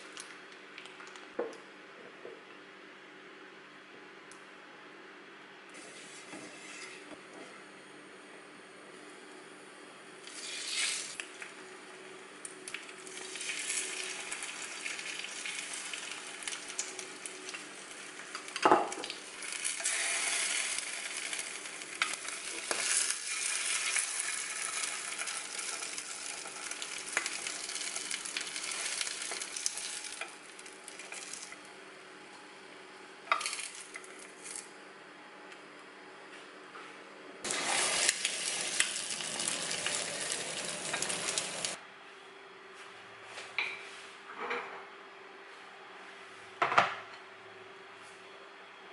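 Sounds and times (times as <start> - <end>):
food sizzling in oil: 10.3 - 11.2, 12.9 - 31.6, 37.5 - 41.8.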